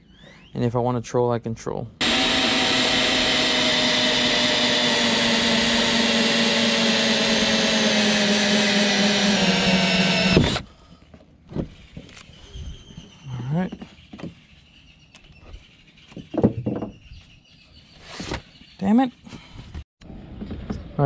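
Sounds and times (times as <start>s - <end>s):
cordless drill motor whine: 2.0s - 10.7s.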